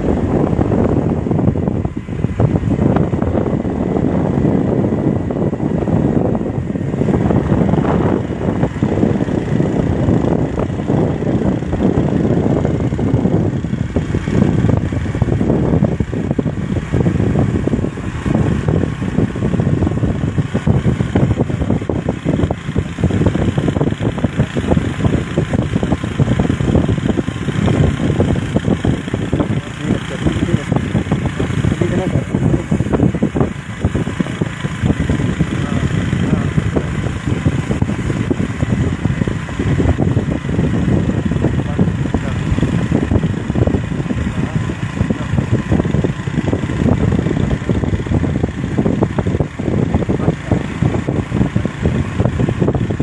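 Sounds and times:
vehicle driving rumble: 0:00.0 - 0:53.0
wind buffeting microphone: 0:00.0 - 0:53.0.

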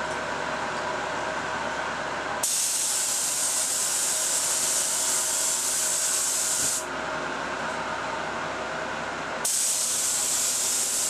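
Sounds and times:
steady hum: 0:00.0 - 0:11.0
spray gun air hiss: 0:02.4 - 0:06.9, 0:09.4 - 0:11.0.

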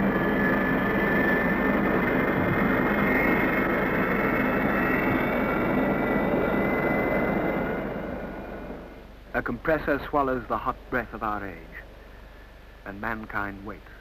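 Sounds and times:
jet engine roaring: 0:00.0 - 0:09.1.

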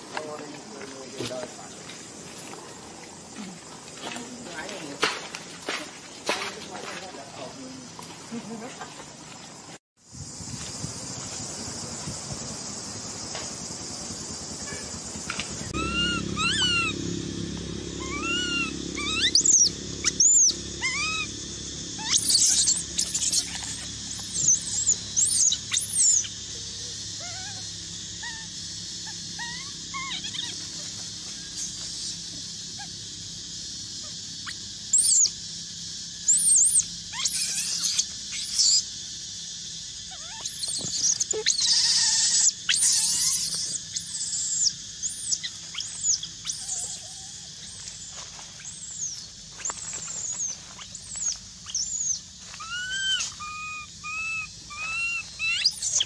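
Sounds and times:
baby monkey screeching cries: 0:15.7 - 0:17.0, 0:18.0 - 0:21.4, 0:22.0 - 0:27.6, 0:28.2 - 0:32.9, 0:34.0 - 0:35.3, 0:36.2 - 0:38.9, 0:40.1 - 0:56.0.

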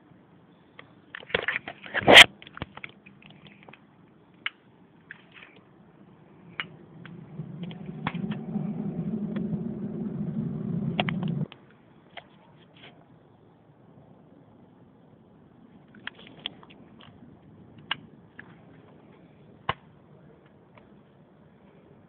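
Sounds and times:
low hum: 0:05.7 - 0:11.6.

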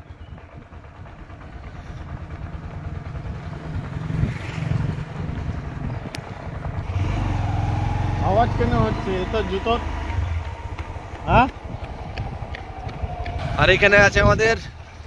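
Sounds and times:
small motorbike engine running: 0:00.0 - 0:14.1
wind noise on microphone: 0:03.2 - 0:07.6, 0:10.1 - 0:15.0.

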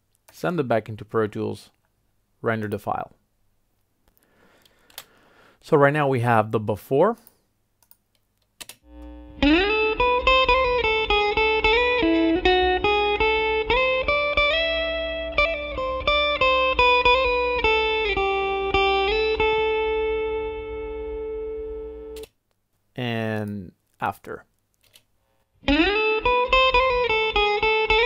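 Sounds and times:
low mains hum: 0:08.9 - 0:09.7
guitar picked melody: 0:08.9 - 0:22.2, 0:25.6 - 0:28.0.

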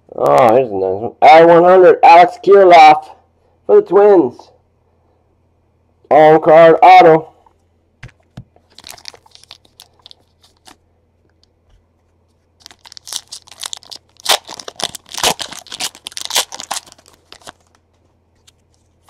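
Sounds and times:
foil wrapper tearing and crinkling: 0:08.6 - 0:10.8, 0:12.6 - 0:17.8.

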